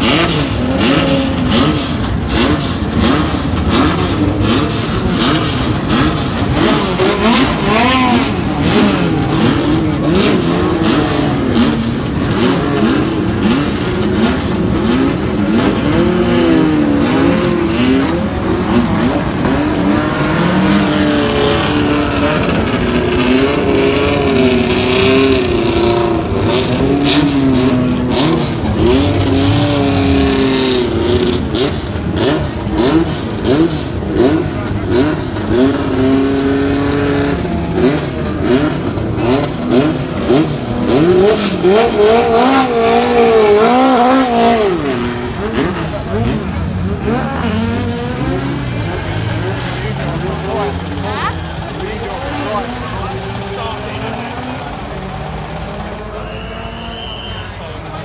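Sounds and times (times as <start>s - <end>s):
racing car engines revving: 0.0s - 58.0s.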